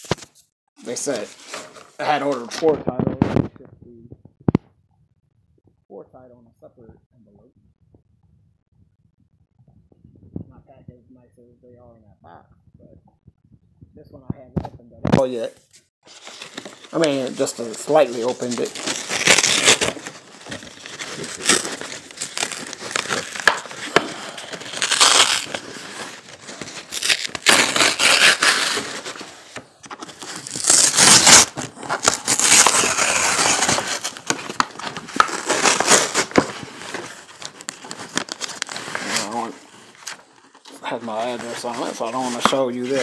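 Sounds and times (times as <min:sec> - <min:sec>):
paper envelope crinkling and tearing: 0:16.1 - 0:43.0.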